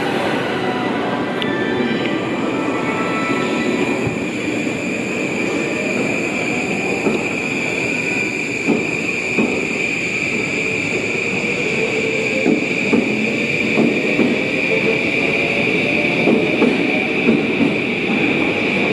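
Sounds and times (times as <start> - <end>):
steady high-pitched tone: 0.0 - 16.2
train wheels clunking over rail joints: 8.5 - 9.8, 12.3 - 14.6.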